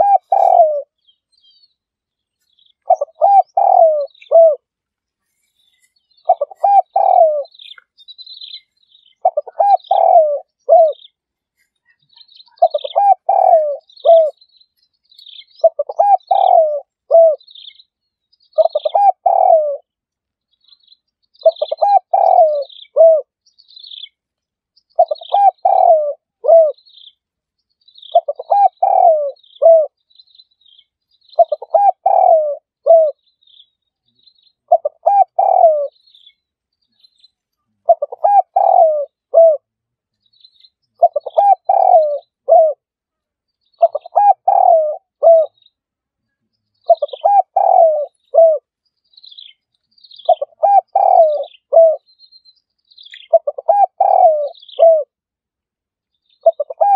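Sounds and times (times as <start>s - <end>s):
dove cooing: 0.0s - 1.0s, 2.8s - 4.7s, 6.2s - 7.8s, 9.2s - 11.1s, 12.4s - 14.4s, 15.6s - 17.5s, 18.6s - 19.9s, 21.4s - 23.3s, 25.0s - 26.8s, 28.1s - 30.0s, 31.4s - 33.2s, 34.7s - 36.0s, 37.8s - 39.7s, 41.0s - 42.9s, 43.8s - 45.6s, 46.8s - 48.7s, 50.2s - 52.0s, 53.1s - 55.2s, 56.4s - 56.9s
small birds chirping: 0.0s - 56.9s.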